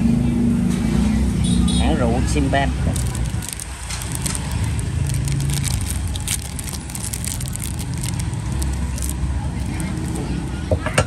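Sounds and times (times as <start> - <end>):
crinkling handling noise: 2.8 - 10.4.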